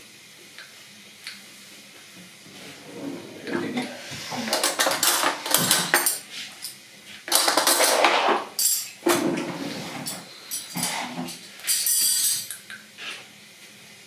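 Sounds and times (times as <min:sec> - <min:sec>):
dishes and cutlery clattering: 0:03.4 - 0:12.6.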